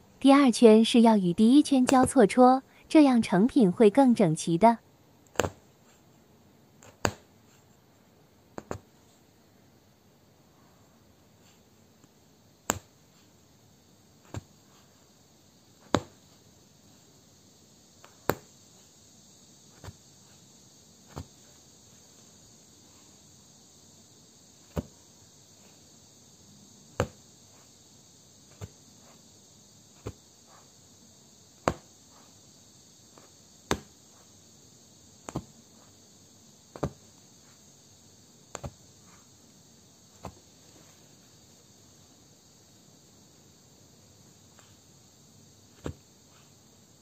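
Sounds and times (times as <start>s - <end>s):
steady high hiss: 0.0s - 47.0s
punch needle popping through fabric: 5.3s - 5.6s, 6.8s - 7.3s, 12.6s - 13.0s, 31.6s - 31.9s.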